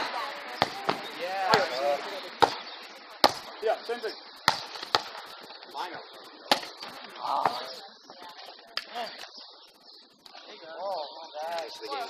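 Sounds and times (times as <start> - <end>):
volleyball slaps: 0.0 - 3.5, 4.5 - 5.2
faint distant voices: 0.0 - 12.0.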